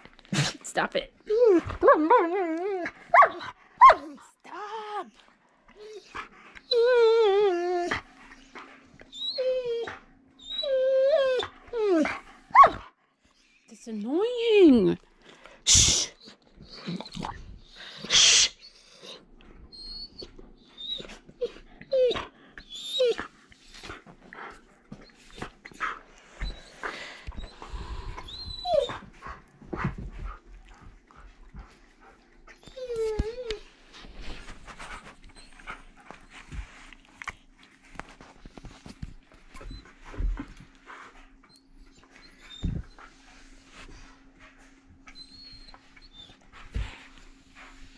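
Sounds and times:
dog whining: 1.2s - 5.2s, 5.8s - 8.5s, 9.1s - 12.9s, 15.7s - 29.9s, 32.5s - 34.4s, 41.5s - 43.0s, 45.0s - 46.4s
rustling: 32.7s - 40.8s
dogs scuffling on a couch: 32.9s - 40.8s.

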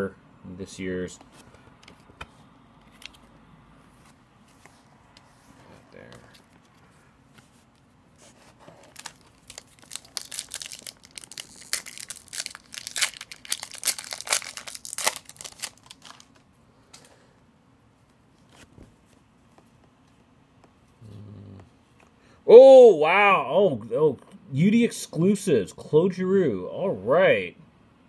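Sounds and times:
foil wrapper crinkling and tearing: 8.8s - 16.4s.

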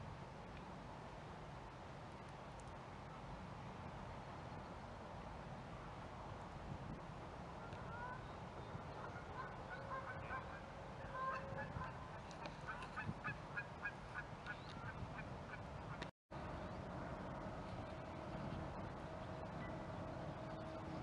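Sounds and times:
geese honking: 8.9s - 16.0s.

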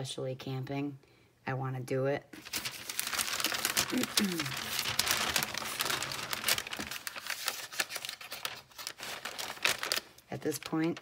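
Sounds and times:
paper crinkling and rustling: 2.4s - 11.0s.

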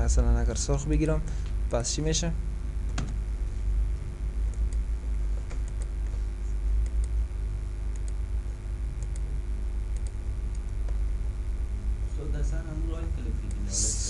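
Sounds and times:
low microphone hum: 0.0s - 14.0s
computer mouse clicks: 5.5s - 6.1s, 6.8s - 7.2s, 7.9s - 8.2s, 9.0s - 9.3s, 9.9s - 11.0s.

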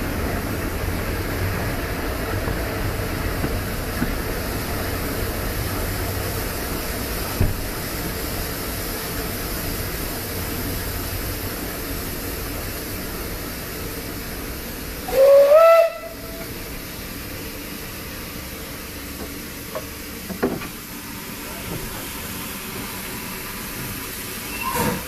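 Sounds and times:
train running rumble: 0.0s - 25.0s
steam locomotive whistle: 15.0s - 16.5s.

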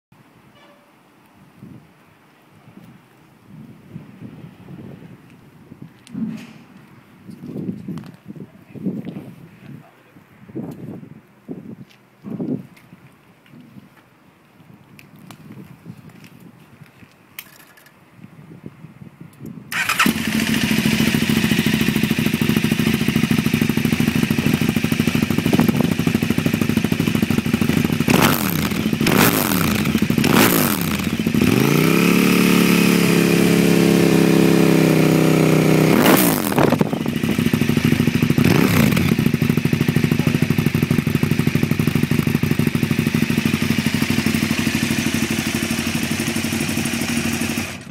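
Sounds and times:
motorcycle engine idling and revving: 19.7s - 47.9s.

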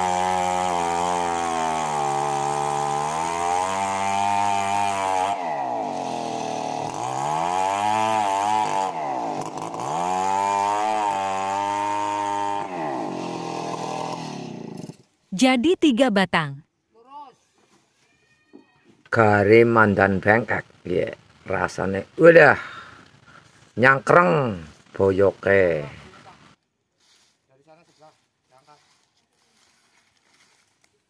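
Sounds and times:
chainsaw ripping a log: 0.0s - 15.2s, 20.1s - 26.6s.

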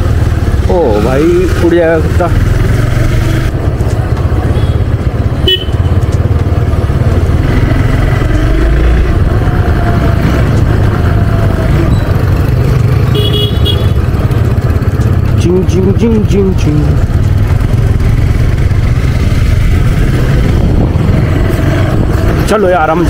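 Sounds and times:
motorcycle running: 0.0s - 23.0s
vehicle horn toots: 4.5s - 5.9s, 13.1s - 14.0s
wind rumbling on microphone: 16.9s - 23.0s.

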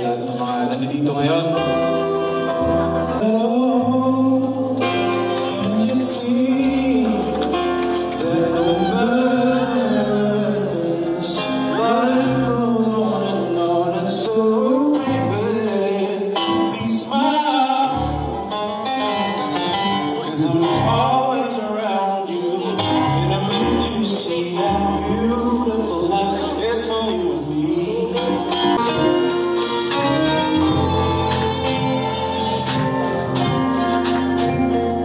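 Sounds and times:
band accompaniment with bass line: 0.0s - 35.0s
man singing into microphone: 3.1s - 35.0s.

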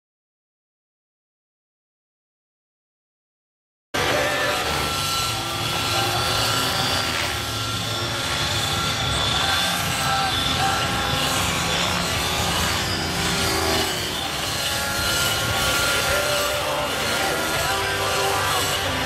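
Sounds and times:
model helicopter engine at high revs: 4.0s - 19.0s
rotor blades whirring: 4.0s - 19.0s.

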